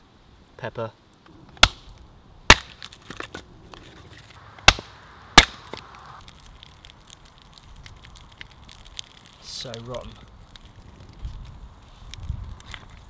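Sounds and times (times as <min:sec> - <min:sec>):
axe striking log: 0:01.6 - 0:01.9, 0:02.5 - 0:03.4, 0:04.6 - 0:05.8
wood clicking and cracking: 0:05.4 - 0:13.0.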